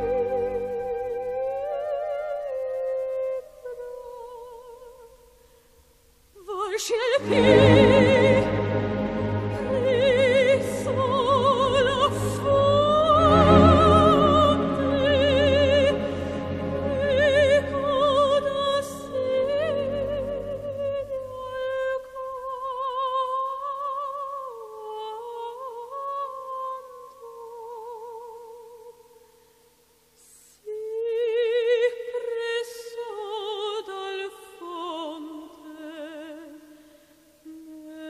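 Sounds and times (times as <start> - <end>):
slow music with vibrato melody: 0.0 - 4.0, 7.2 - 21.1.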